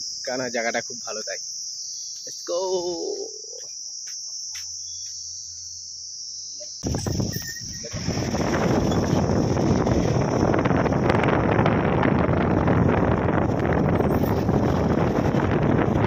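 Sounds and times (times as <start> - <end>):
high-pitched insect chirring: 0.0 - 11.4, 13.5 - 16.0
wind buffeting microphone: 6.8 - 16.0
moving vehicle rushing noise: 7.8 - 16.0.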